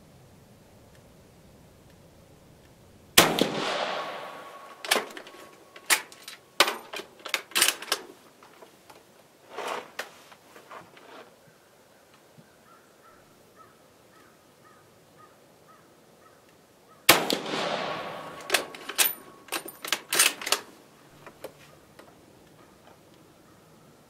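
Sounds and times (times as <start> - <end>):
rifle shot: 3.2 - 6.9, 17.1 - 19.6
rifle bolt clicking: 3.2 - 8.1, 17.1 - 20.7.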